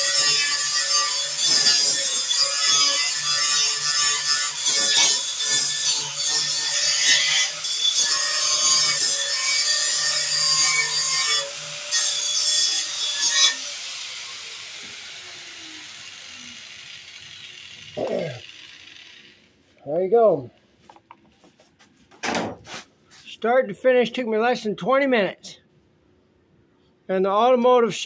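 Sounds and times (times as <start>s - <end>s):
angle grinder grinding steel: 0.0s - 19.8s.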